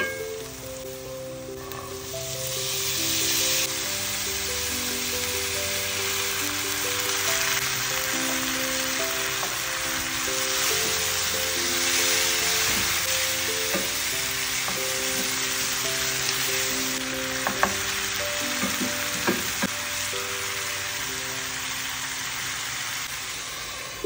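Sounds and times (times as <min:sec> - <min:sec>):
light background music: 0:00.0 - 0:23.1
vegetables sizzling in oil: 0:00.0 - 0:24.0
wooden spoon knocking pan: 0:18.5 - 0:19.6.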